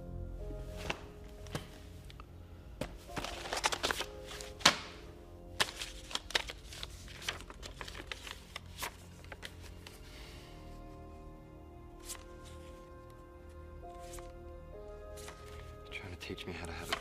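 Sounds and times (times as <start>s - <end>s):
background music: 0.0s - 17.0s
papers rustling: 0.7s - 1.9s, 2.8s - 10.1s, 12.0s - 13.2s, 15.1s - 17.0s.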